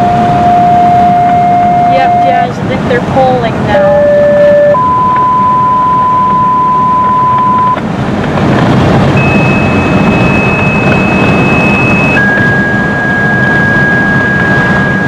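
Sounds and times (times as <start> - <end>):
thin high tone: 0.0 - 2.6, 9.2 - 15.0
tyre and engine rumble: 0.0 - 15.0.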